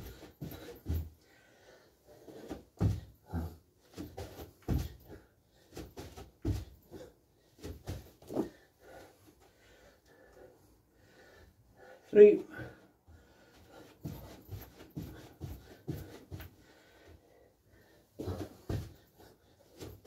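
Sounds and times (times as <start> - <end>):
feet and hands thumping on mat: 2.4 - 5.2, 5.8 - 8.6, 13.7 - 16.6, 18.2 - 19.2.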